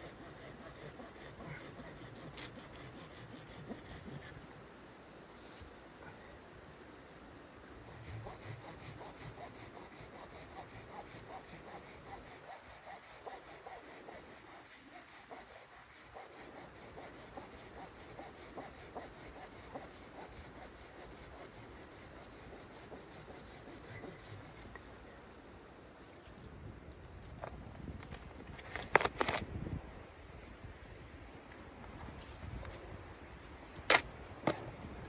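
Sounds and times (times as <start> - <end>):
hand saw cutting wood: 0.0 - 4.3, 7.9 - 24.6.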